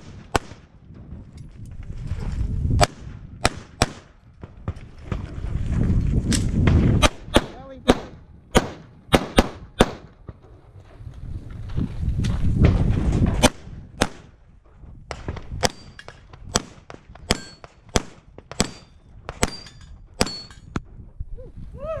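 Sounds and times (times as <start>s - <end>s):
pistol shots: 0.0s - 0.7s, 2.8s - 4.2s, 7.0s - 10.2s, 15.1s - 20.6s
bullets ringing on steel plates: 17.3s - 17.7s, 18.6s - 20.7s.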